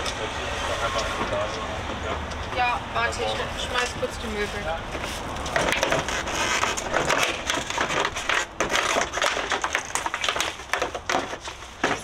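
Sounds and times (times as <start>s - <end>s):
household items clattering: 5.5s - 12.0s.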